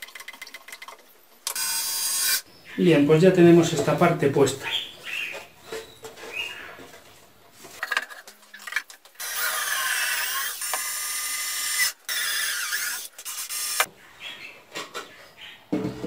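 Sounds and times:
cordless drill driving into wood: 9.2s - 13.9s.

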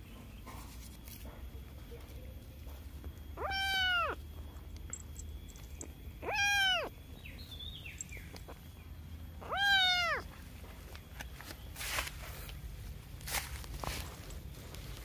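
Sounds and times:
kitten meowing: 3.4s - 4.2s, 6.2s - 6.9s, 9.4s - 10.3s.

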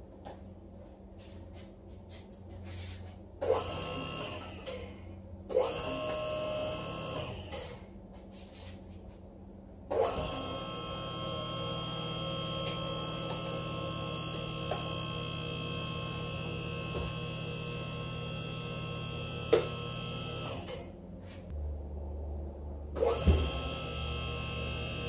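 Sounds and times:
hydraulic pump humming: 9.9s - 20.9s, 23.0s - 25.0s.

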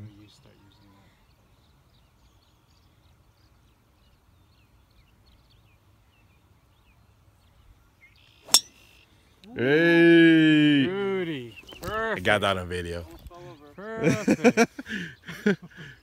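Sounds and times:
club hitting golf ball crack: 8.5s - 8.8s
golf club swish: 8.5s - 8.8s.

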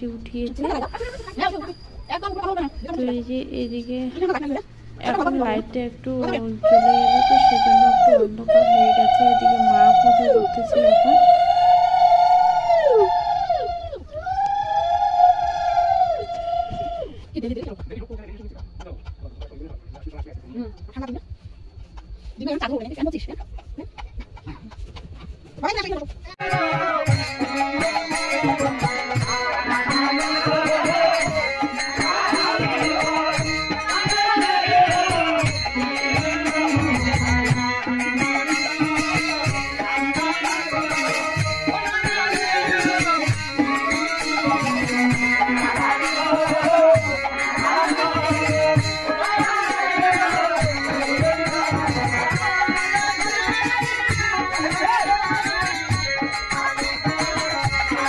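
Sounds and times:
small hand cymbals jingling: 0.0s - 11.2s, 25.7s - 58.0s
group singing devotional chant: 2.8s - 13.9s, 26.4s - 58.0s.

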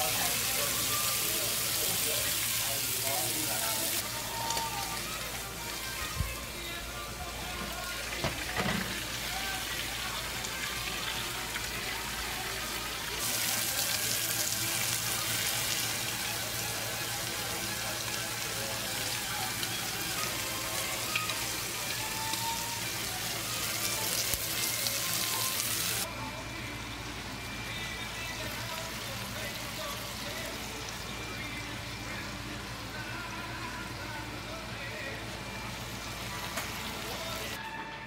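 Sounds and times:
steak sizzling in frying pan: 0.0s - 6.2s, 7.4s - 26.0s.

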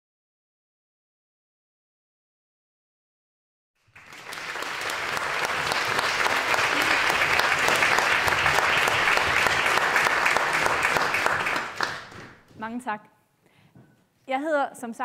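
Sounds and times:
audience applauding: 3.8s - 12.5s.

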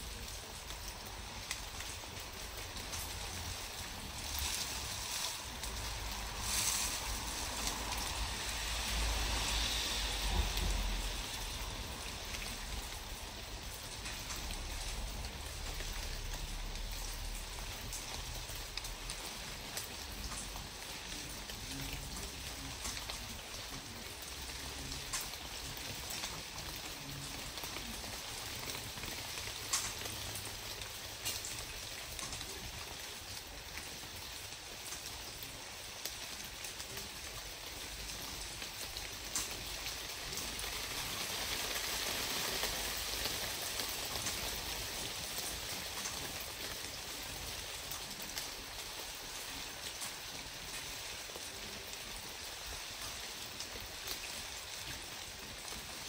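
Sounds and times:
steady outdoor hiss: 0.0s - 56.0s
low uneven rumble: 0.1s - 19.1s.

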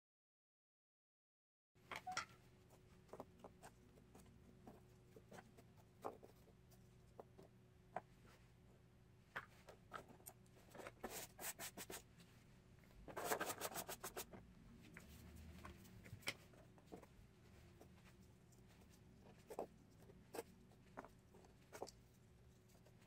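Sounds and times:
cardboard model being handled: 13.0s - 23.0s.

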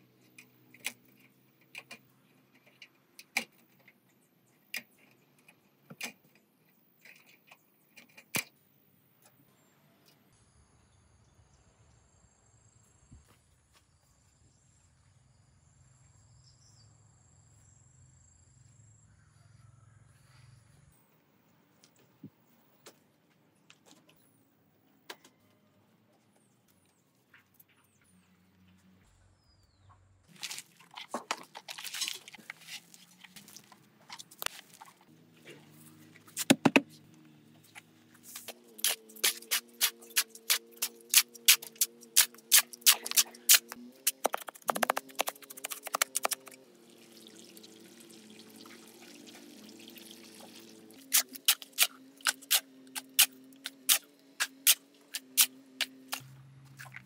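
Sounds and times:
shovel scraping on concrete: 38.2s - 46.5s, 51.0s - 57.0s
water pouring: 44.7s - 52.5s.

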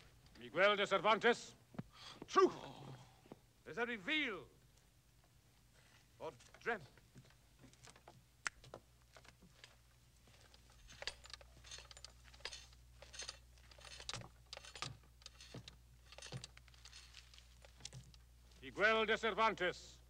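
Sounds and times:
soldiers shuffling and stepping: 4.6s - 18.9s
armour clinking: 9.1s - 18.4s.

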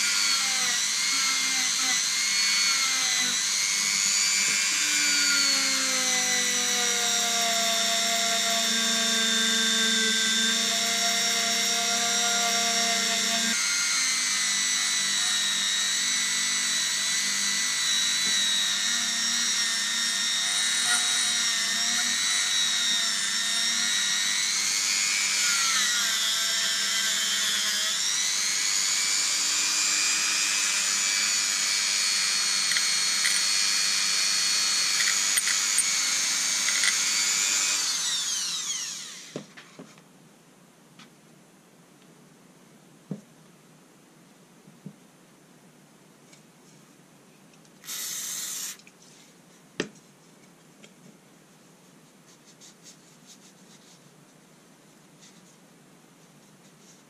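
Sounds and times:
rotary tool whining on metal: 0.0s - 39.4s.

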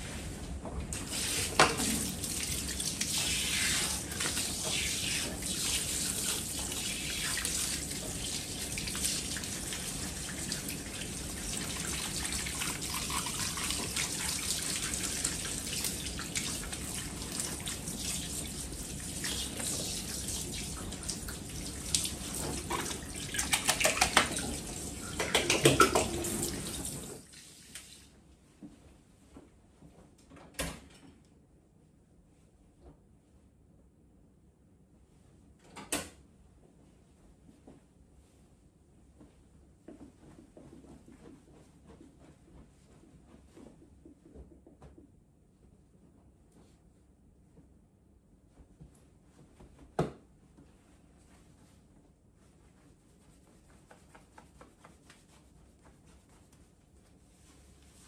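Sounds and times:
shower spray rinsing hair: 1.0s - 28.0s.

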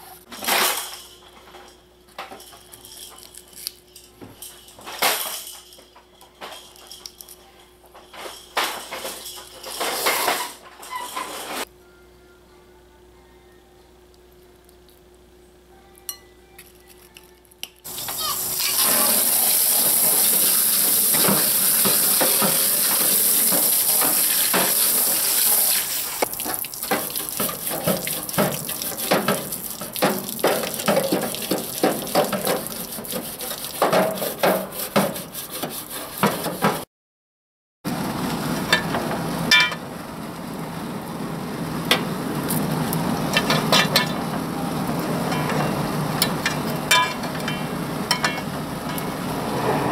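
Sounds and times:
wire brush scraping grill bars: 8.1s - 11.7s, 26.9s - 36.8s
hose spraying water: 17.9s - 35.8s.

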